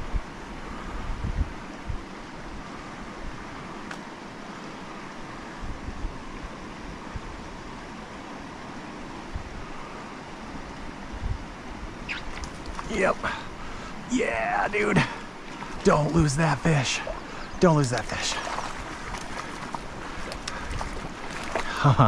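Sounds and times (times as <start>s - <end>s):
wind buffets on microphone: 0.0s - 3.8s, 5.5s - 7.8s, 9.2s - 10.0s, 11.0s - 13.8s, 18.4s - 22.0s
creek rushing over rocks: 12.3s - 22.0s.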